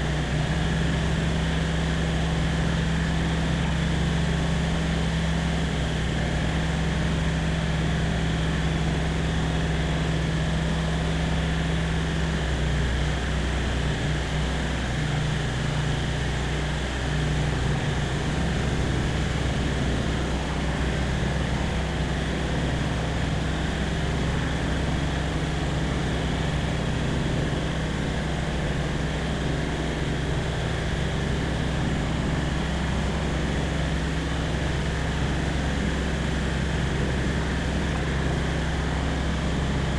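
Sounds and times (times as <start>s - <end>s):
light aircraft engine droning: 0.0s - 39.9s.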